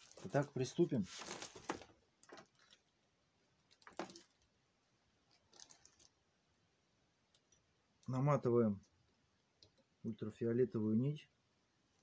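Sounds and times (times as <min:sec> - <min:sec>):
soft handling rustles: 0:00.0 - 0:02.9.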